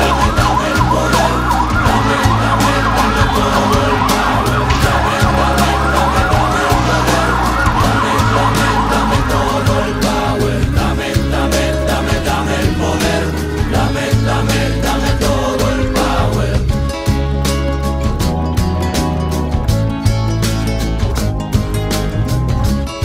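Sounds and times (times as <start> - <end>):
siren wailing in fast yelp: 0.0 - 10.4
background music with bass: 0.0 - 23.0.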